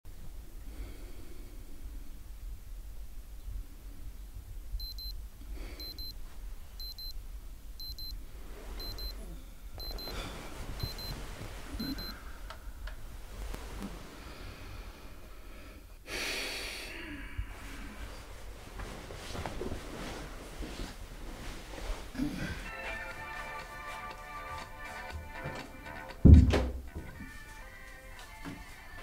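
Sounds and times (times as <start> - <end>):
digital alarm clock beeping: 4.8 - 5.2, 5.8 - 6.2, 6.8 - 7.1, 7.8 - 8.2, 8.8 - 9.1, 9.8 - 10.1, 10.8 - 11.1, 11.8 - 12.1
bedding rustling: 8.2 - 15.7, 17.5 - 25.9.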